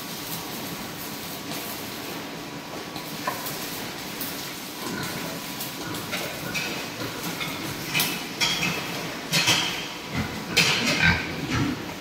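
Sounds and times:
pigs grunting and squealing: 0:04.8 - 0:12.0.

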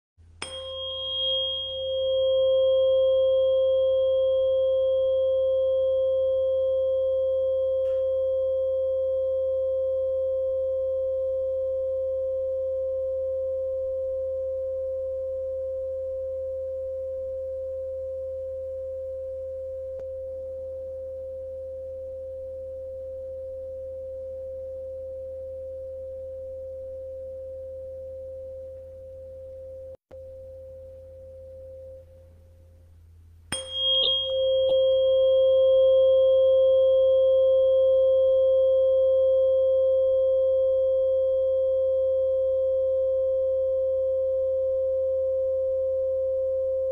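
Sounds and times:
fainter higher ring: 0:00.4 - 0:10.8, 0:33.5 - 0:41.4
tuning fork ringing: 0:00.4 - 0:46.9.

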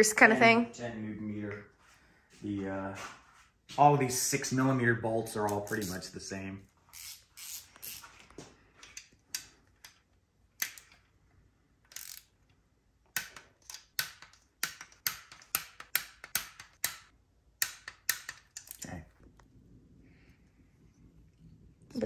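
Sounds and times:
hand ratchet clicking: 0:06.9 - 0:08.1, 0:11.9 - 0:12.3.

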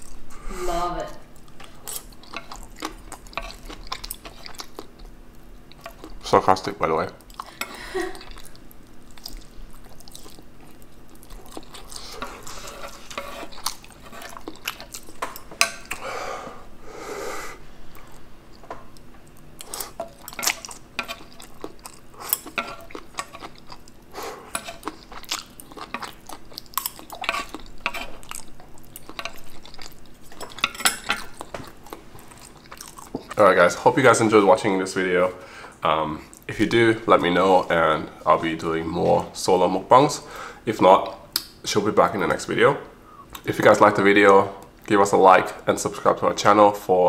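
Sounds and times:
close-up chewing: 0:01.3 - 0:06.3, 0:07.2 - 0:16.0, 0:17.9 - 0:33.6
metal chopsticks scraping wooden board: 0:12.2 - 0:14.4.

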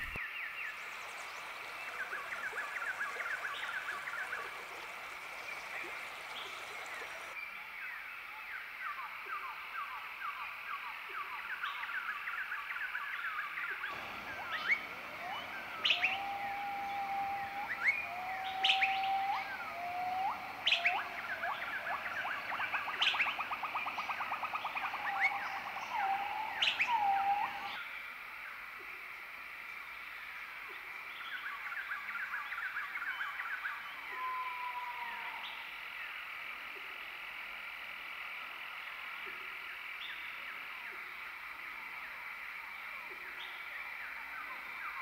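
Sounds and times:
fast bird trill: 0:13.9 - 0:27.7
birds chirping and singing: 0:13.9 - 0:27.8
bird whistle flicking upward: 0:14.1 - 0:27.7.

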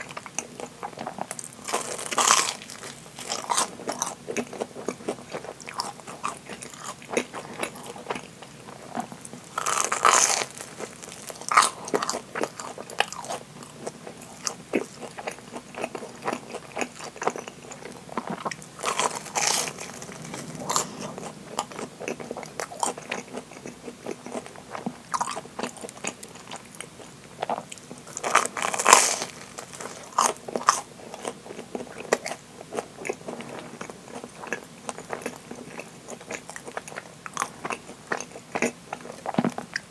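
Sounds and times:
crunchy bites: 0:00.0 - 0:08.2, 0:09.0 - 0:24.4, 0:27.4 - 0:32.8
crackly chewing: 0:00.0 - 0:39.9.

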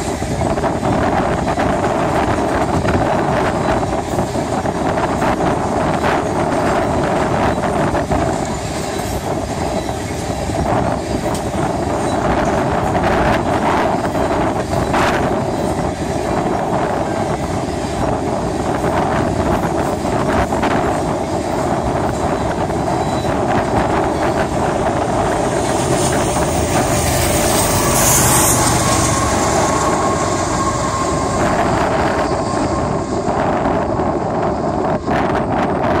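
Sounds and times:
freight train wheels rumbling on rails: 0:00.0 - 0:36.0.

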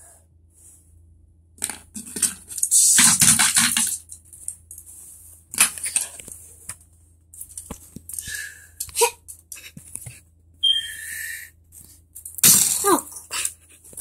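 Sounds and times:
crinkly rustling and scraping: 0:01.6 - 0:08.2, 0:11.7 - 0:14.0.

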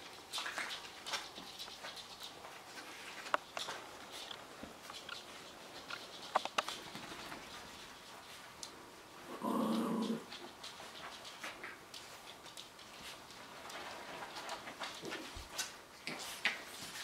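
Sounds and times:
puppies scuffling: 0:00.0 - 0:17.0
puppy play growl: 0:09.2 - 0:10.4.

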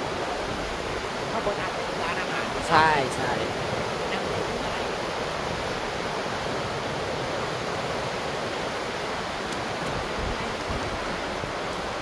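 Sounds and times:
fast-flowing water rushing: 0:00.0 - 0:12.0.

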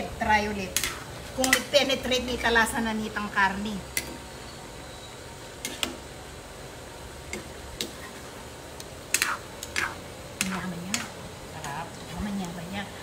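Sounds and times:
utensils tapping on a pot: 0:00.8 - 0:01.8.

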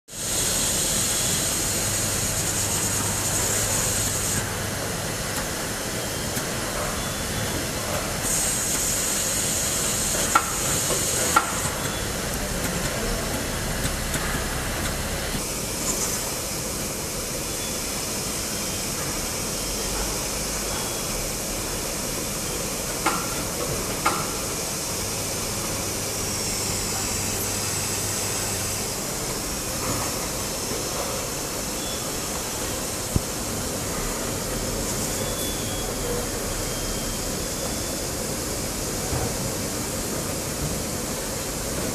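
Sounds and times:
constant machine hiss: 0:00.1 - 0:41.9
high pneumatic hiss: 0:08.2 - 0:12.2.

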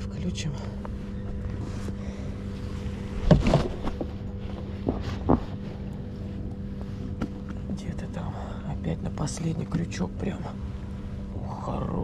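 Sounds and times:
steady low hum: 0:00.0 - 0:12.0
knocks and thuds in boat: 0:03.2 - 0:05.9.

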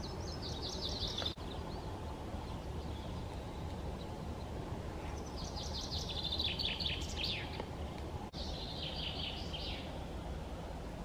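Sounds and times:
songbird trilling: 0:00.0 - 0:04.1, 0:05.1 - 0:07.6, 0:08.4 - 0:09.9.

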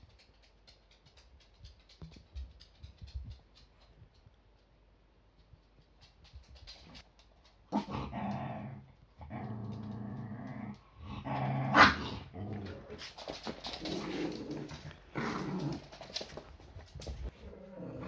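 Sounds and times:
small dogs play-growling: 0:07.7 - 0:18.0
dog barking: 0:11.7 - 0:12.1.

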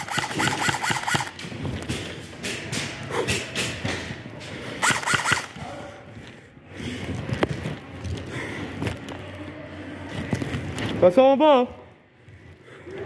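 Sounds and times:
airsoft guns firing: 0:00.0 - 0:01.4, 0:04.8 - 0:05.6.

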